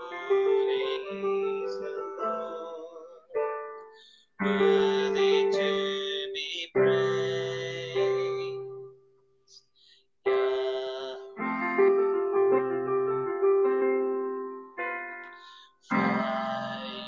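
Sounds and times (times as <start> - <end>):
slow piano chords: 0.0 - 9.1, 10.3 - 17.0.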